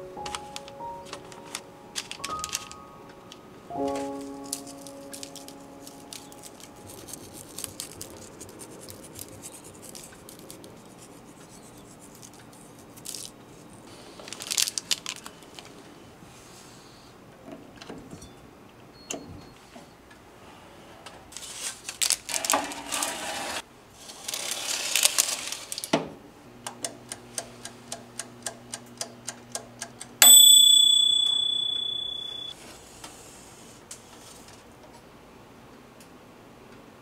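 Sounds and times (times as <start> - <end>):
mechanical timer ticking: 27.9 - 32.5
timer bell ding: 30.2 - 32.5.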